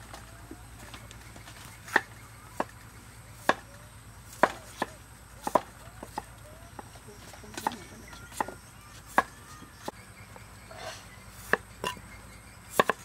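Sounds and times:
cleaver chopping on wooden block: 0:01.8 - 0:02.7, 0:03.4 - 0:03.6, 0:04.3 - 0:06.3, 0:11.4 - 0:12.0, 0:12.7 - 0:13.0.

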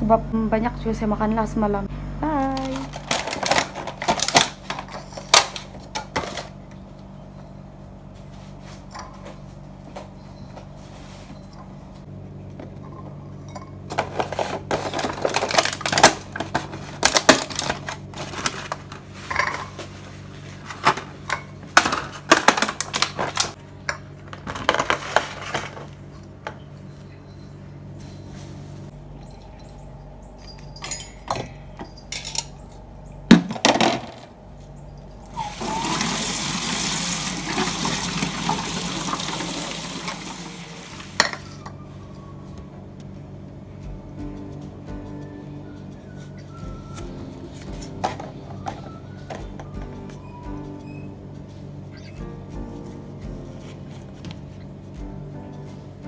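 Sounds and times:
steady low hum: 0:00.0 - 0:35.4, 0:40.8 - 0:56.0
plastic boxes crackling and clicking: 0:02.5 - 0:05.6, 0:14.0 - 0:19.0.

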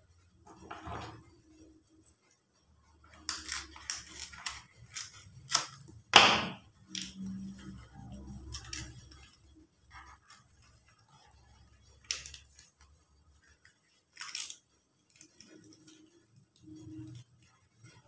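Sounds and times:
leaf crackling as folded: 0:03.2 - 0:06.0, 0:06.9 - 0:18.0.

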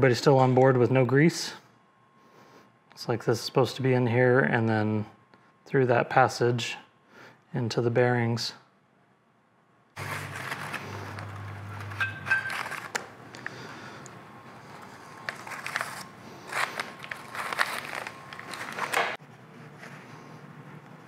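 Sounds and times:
paper towel rustling: 0:10.0 - 0:13.0, 0:14.6 - 0:21.0.

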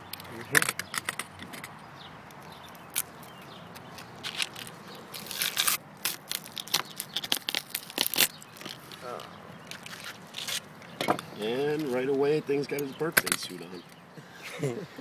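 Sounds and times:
fish skin tearing: 0:04.2 - 0:08.9.

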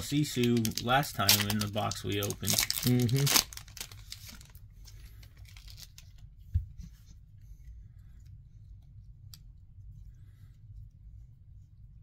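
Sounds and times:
foil wrapper crinkling: 0:00.0 - 0:06.2.

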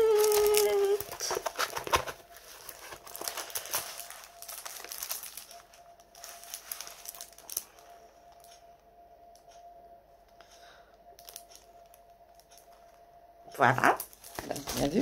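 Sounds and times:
plastic sleeve crinkling: 0:00.0 - 0:08.4, 0:14.0 - 0:15.0.

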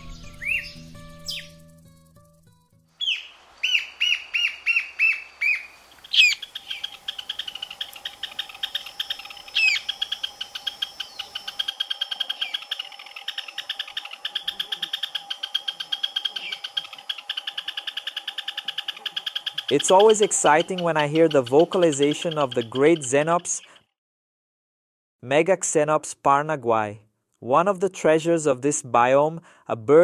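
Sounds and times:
bird singing sharp notes: 0:00.0 - 0:01.7, 0:03.0 - 0:11.7, 0:18.9 - 0:23.6
bird chip notes: 0:00.0 - 0:23.6.

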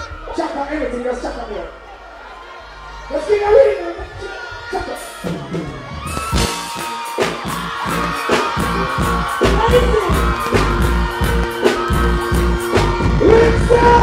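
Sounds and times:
live reggae band playing: 0:05.0 - 0:14.0
drum beat: 0:05.3 - 0:14.0
heavy bass line: 0:06.3 - 0:14.0
man's voice: 0:07.9 - 0:10.8, 0:13.0 - 0:14.0.

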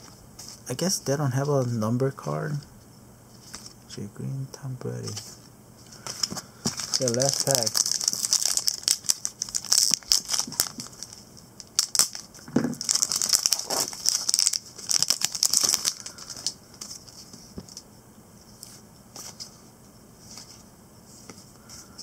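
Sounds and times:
cards rustling: 0:05.0 - 0:17.8
foil wrapper crinkling and tearing: 0:06.0 - 0:17.2.

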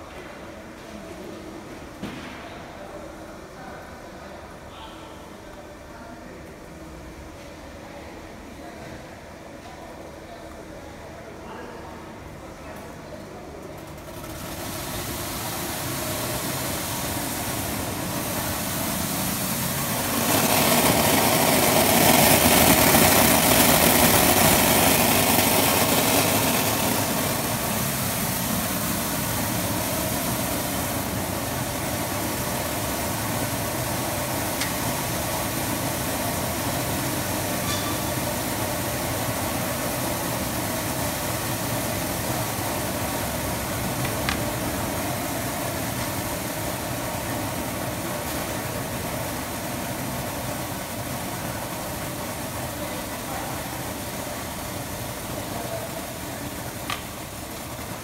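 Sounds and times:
machine hum and hiss: 0:00.0 - 0:58.0
grain flowing down chutes: 0:13.6 - 0:58.0.

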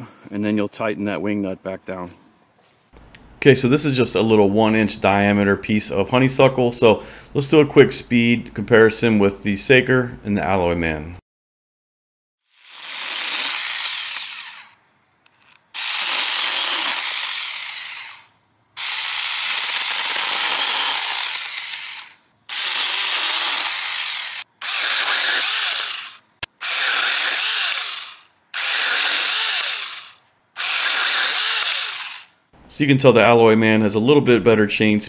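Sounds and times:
mini chainsaw cutting branches: 0:12.5 - 0:32.4.

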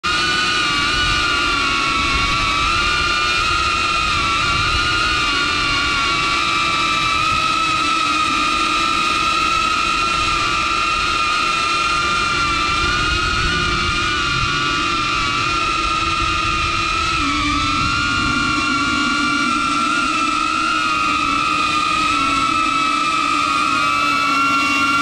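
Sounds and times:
drone propellers whining: 0:00.0 - 0:25.0
wind rumble: 0:12.0 - 0:25.0.

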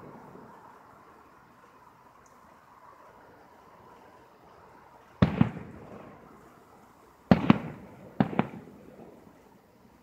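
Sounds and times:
firework shells bursting: 0:05.1 - 0:06.5, 0:07.2 - 0:09.5.

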